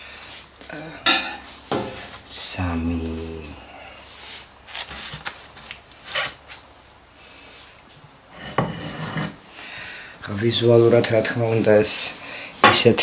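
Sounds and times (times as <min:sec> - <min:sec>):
utensils clattering on tray and plate: 0:01.1 - 0:02.1.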